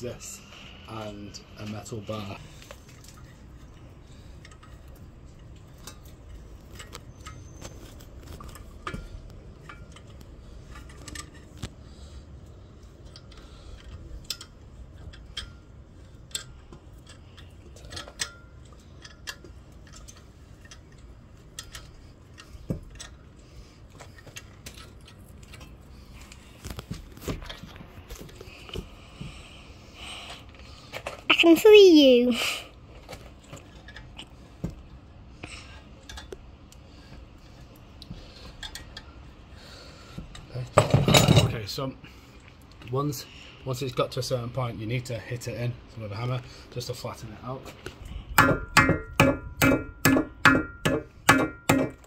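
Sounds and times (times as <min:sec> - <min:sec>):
metal tools clicking and clinking: 0:08.3 - 0:11.6, 0:13.0 - 0:23.4
sharp metal knocks: 0:48.4 - 0:52.0.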